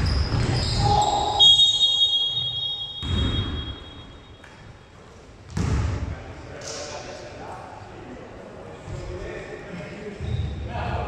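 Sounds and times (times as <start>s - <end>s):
referee's whistle: 0.0s - 4.4s
sneaker squeaks: 0.0s - 5.7s, 10.2s - 10.8s
basketball court noise: 0.0s - 7.0s.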